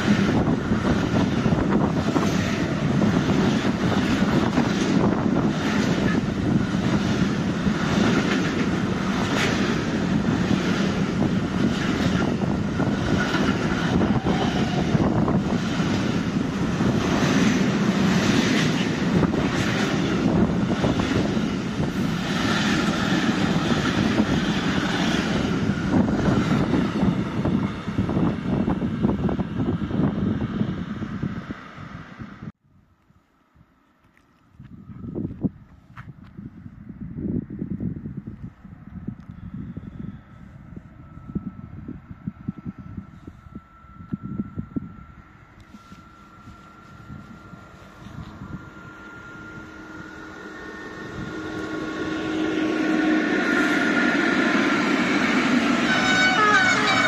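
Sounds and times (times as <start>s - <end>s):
freight train wagons rumbling past: 0.0s - 32.6s, 39.8s - 57.0s.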